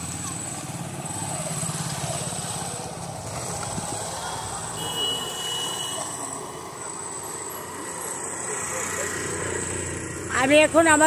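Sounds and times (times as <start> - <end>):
street background noise: 0.0 - 11.0
thin high tone: 4.8 - 8.7.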